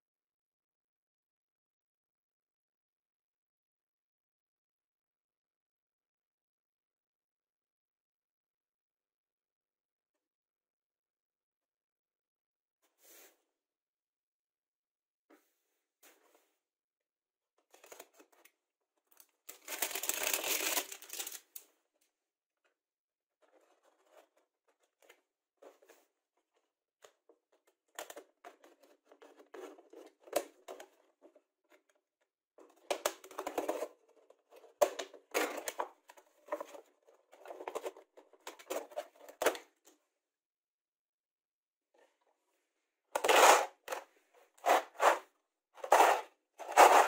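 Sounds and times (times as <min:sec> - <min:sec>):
plastic crackling and crinkling: 0:17.7 - 0:21.8.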